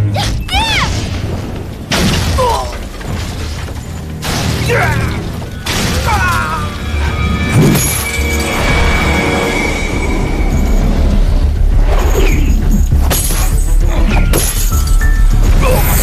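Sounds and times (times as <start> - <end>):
dramatic film music: 0.0 - 16.0
wooden doors being smashed: 1.0 - 6.6.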